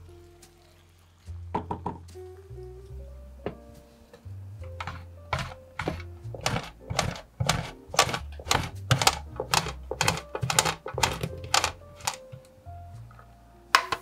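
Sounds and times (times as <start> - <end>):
cheese grating on metal grater: 4.8 - 12.2.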